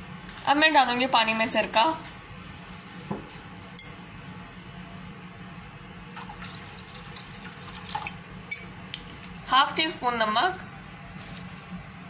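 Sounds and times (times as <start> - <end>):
liquid pouring into water: 6.2 - 9.4.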